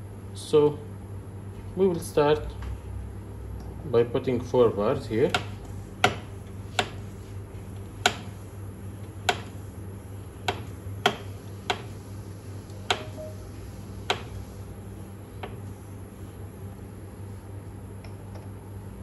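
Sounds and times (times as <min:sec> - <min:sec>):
low hum: 0:12.1 - 0:17.4.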